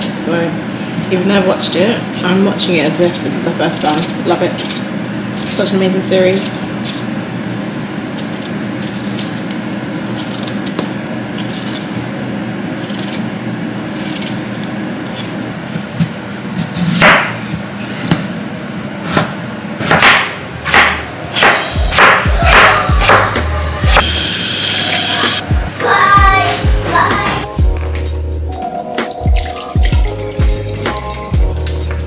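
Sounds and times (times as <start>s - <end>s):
soft background music: 25.4s - 32.0s.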